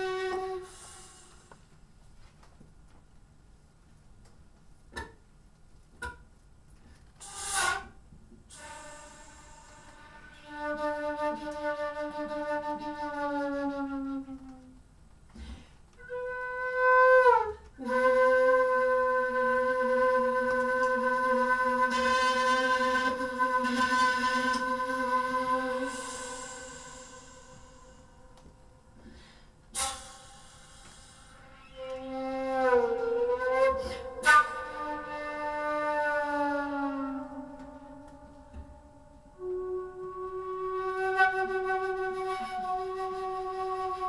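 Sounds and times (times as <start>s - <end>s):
flute sliding notes: 0.0s - 1.6s, 7.2s - 14.8s, 16.0s - 29.0s, 29.7s - 44.0s
breathy burst of air: 0.6s - 1.7s, 8.5s - 10.2s, 25.9s - 31.8s.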